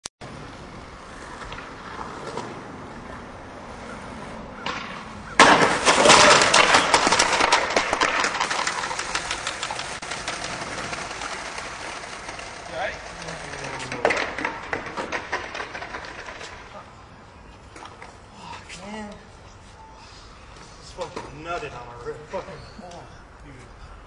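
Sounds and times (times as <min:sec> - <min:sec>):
skateboard wheels rolling on pavement: 0:00.2 - 0:18.3
crackling clatter: 0:04.7 - 0:16.9
loud crash: 0:05.4 - 0:12.2.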